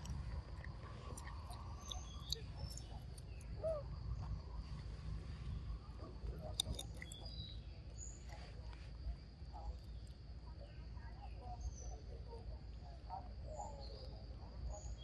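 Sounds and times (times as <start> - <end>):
chewing clicks: 0.0 - 3.6, 6.2 - 7.6.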